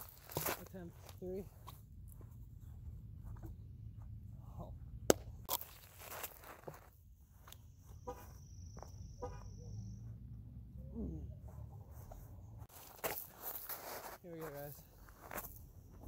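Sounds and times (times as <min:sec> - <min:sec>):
small birds or insects chirping: 0:05.6 - 0:12.7.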